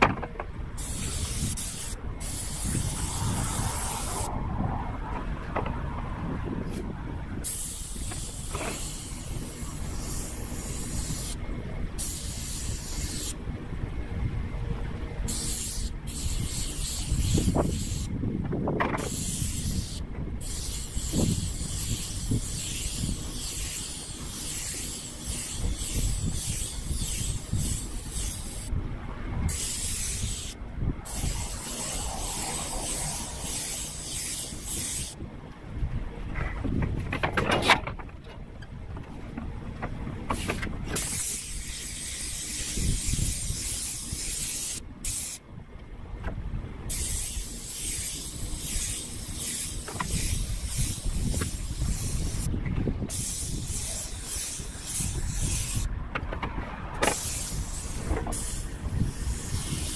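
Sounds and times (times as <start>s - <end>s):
wind rumble on microphone: 0.0s - 47.5s, 48.3s - 59.9s
paint sprayer hissing: 0.8s - 4.3s, 7.4s - 11.4s, 12.0s - 13.4s, 15.3s - 18.1s, 19.0s - 28.7s, 29.5s - 35.2s, 40.4s - 45.4s, 46.9s - 52.5s, 53.1s - 55.9s, 57.0s - 59.9s.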